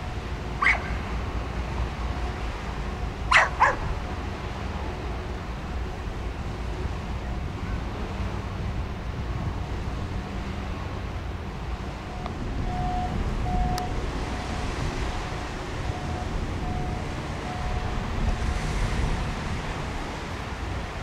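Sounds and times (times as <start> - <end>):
steady low rumble: 0.0 - 21.0
dog barking: 0.6 - 0.9, 3.3 - 3.9.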